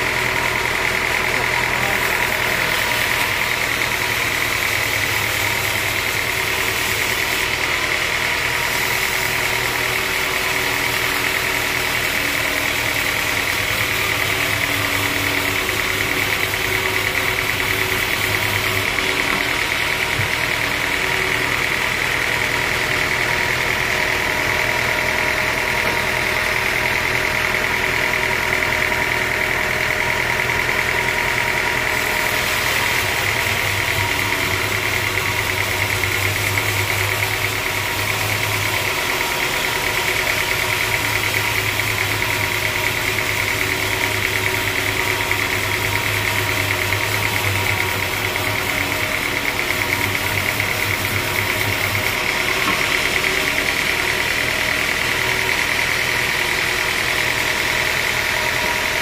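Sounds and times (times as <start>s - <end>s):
band sawmill running drone: 0.0s - 59.0s
high whine of saw blade: 0.0s - 59.0s.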